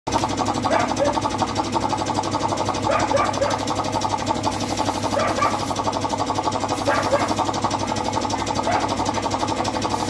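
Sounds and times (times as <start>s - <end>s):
air compressor pulsing: 0.1s - 10.0s
spray gun air hiss: 4.5s - 5.9s, 6.7s - 7.5s, 9.8s - 10.0s.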